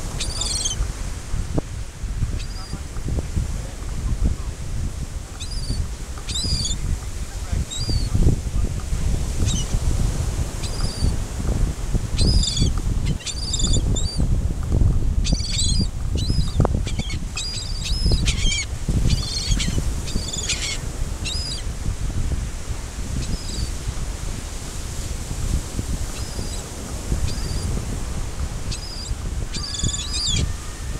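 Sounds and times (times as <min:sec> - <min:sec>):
surf: 0:00.0 - 0:30.9
wind on microphone: 0:00.0 - 0:30.9
gulls squawking: 0:00.2 - 0:00.8, 0:15.3 - 0:21.6, 0:28.7 - 0:30.9.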